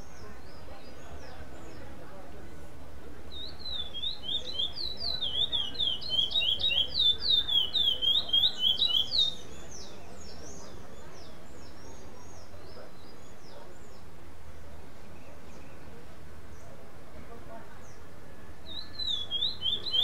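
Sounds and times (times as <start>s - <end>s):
finch singing whistled notes: 3.3s - 14.0s, 18.6s - 20.0s
faint high chirps: 18.3s - 20.0s.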